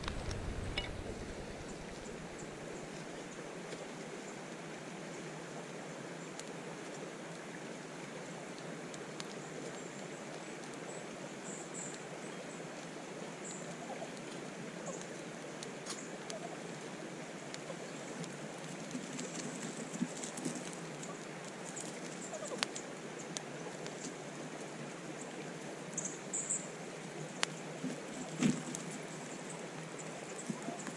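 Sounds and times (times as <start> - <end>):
faint clicks and ticks: 0.0 - 3.4
creek flowing: 0.0 - 30.9.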